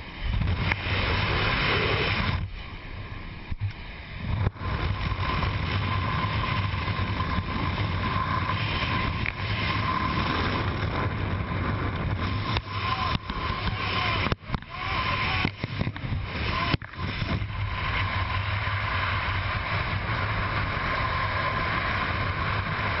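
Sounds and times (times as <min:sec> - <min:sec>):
plane engine and propeller droning: 0:00.0 - 0:23.0
wind rushing: 0:00.0 - 0:23.0.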